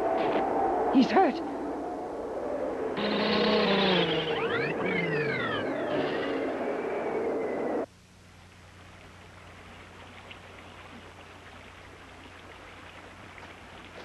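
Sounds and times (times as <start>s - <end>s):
falling whistling sound effect: 3.0s - 7.9s
faint hiss with crackles: 7.8s - 14.0s.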